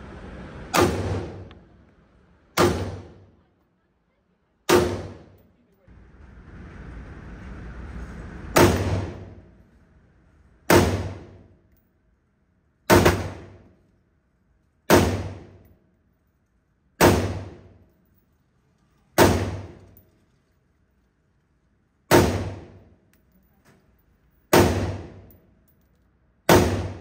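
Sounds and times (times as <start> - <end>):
rifle shots echoing indoors: 26.4 - 27.0.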